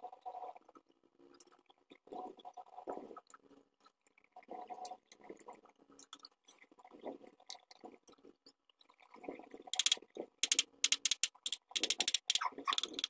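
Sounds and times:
metal and plastic parts scraping: 9.8s - 13.0s.

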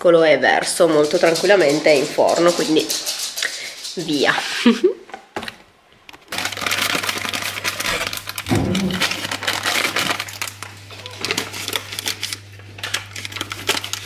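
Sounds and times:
foil packet crinkling: 5.4s - 14.0s.

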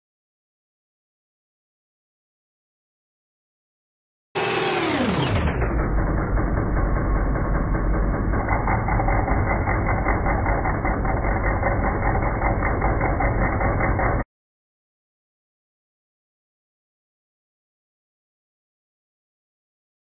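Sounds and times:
muffled bench grinder running: 4.4s - 14.2s.

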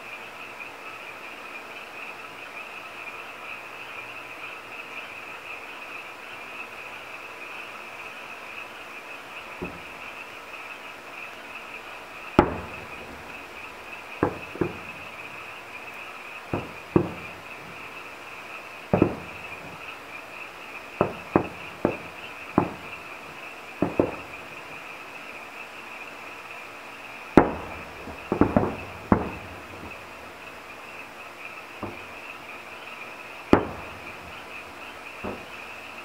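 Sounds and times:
night insects chirping: 0.0s - 36.0s
distant firework booms: 9.6s - 10.0s, 12.3s - 15.5s, 16.4s - 18.0s, 18.9s - 19.9s, 20.9s - 24.8s, 27.4s - 30.3s, 31.8s - 32.4s, 33.5s - 35.9s.

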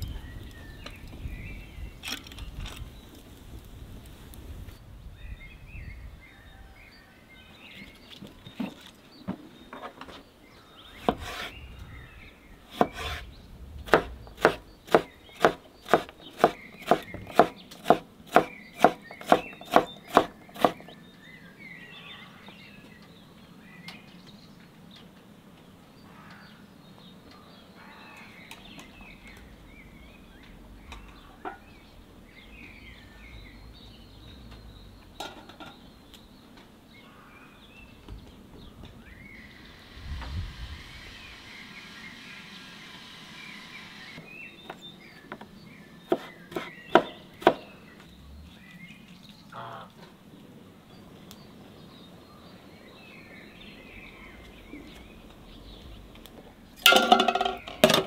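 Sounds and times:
faint birds chirping: 0.0s - 58.0s
knife chopping on wooden board: 11.0s - 11.5s, 12.7s - 13.2s, 13.9s - 20.9s, 46.1s - 47.6s.

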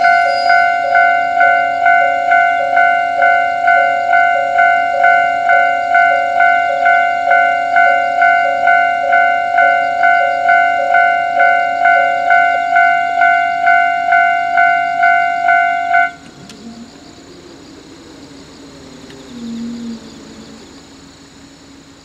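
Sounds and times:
level crossing bell ringing: 0.0s - 16.2s
diesel railcar idling: 0.0s - 22.0s.

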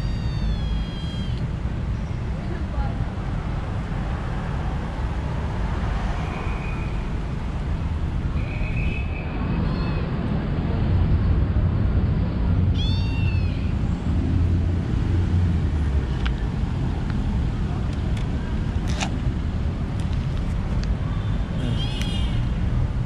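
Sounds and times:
kitten meowing: 0.0s - 1.4s, 9.6s - 10.1s, 12.7s - 13.8s, 21.6s - 22.3s
street traffic rumble: 0.0s - 23.0s.

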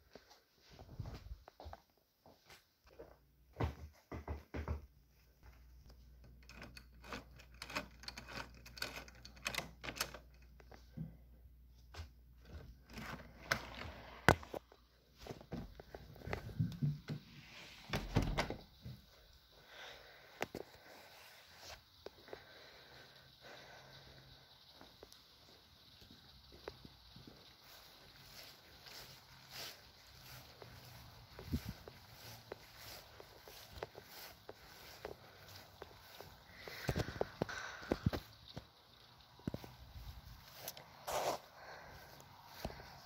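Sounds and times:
footsteps indoors: 0.0s - 6.0s, 24.8s - 38.7s
faint steady hiss: 4.6s - 43.0s.

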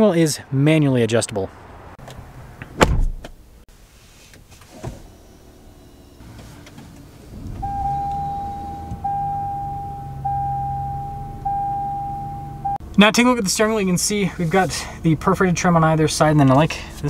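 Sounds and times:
low hum: 5.0s - 13.0s
dashboard warning chime: 7.3s - 12.8s.

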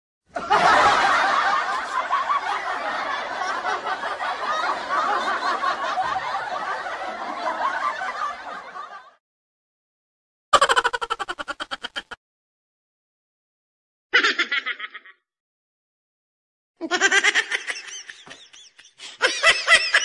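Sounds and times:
crowd laughing: 0.3s - 9.2s, 10.6s - 12.2s, 14.2s - 15.2s, 16.8s - 20.0s.

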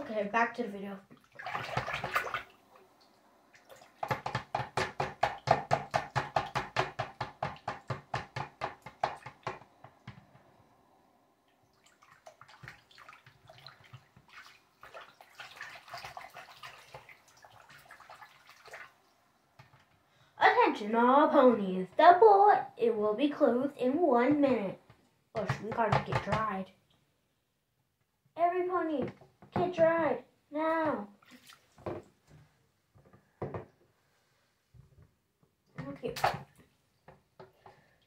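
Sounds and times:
water sloshing in a sink: 1.0s - 10.4s, 11.4s - 20.0s, 31.0s - 32.3s.

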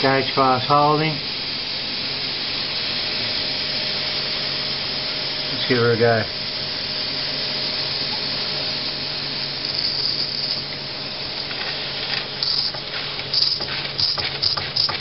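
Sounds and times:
toy steam engine hissing: 7.8s - 10.7s, 11.6s - 15.0s.

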